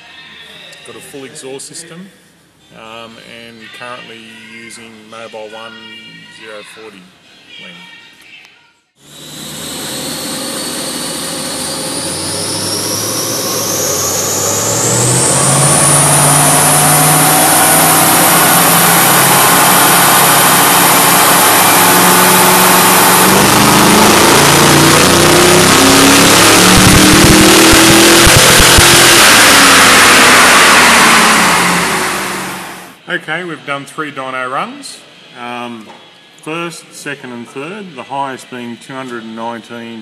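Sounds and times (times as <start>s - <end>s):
car engine revving on dyno: 9.0s - 33.0s
high whine: 9.0s - 33.0s.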